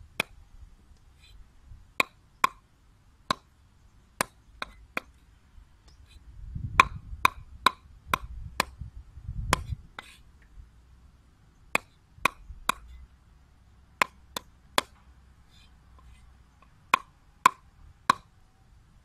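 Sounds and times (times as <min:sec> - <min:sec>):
cleaver chopping on wooden board: 0:06.8 - 0:08.8, 0:11.8 - 0:12.9.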